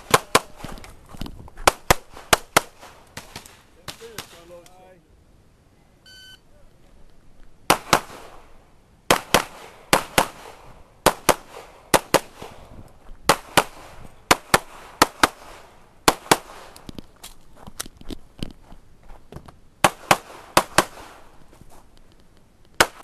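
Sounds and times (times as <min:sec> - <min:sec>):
pistol shots in rapid pairs: 0:00.0 - 0:00.6, 0:01.7 - 0:04.5, 0:07.7 - 0:08.4, 0:09.1 - 0:12.6, 0:13.3 - 0:16.7, 0:19.8 - 0:21.2, 0:22.8 - 0:23.0.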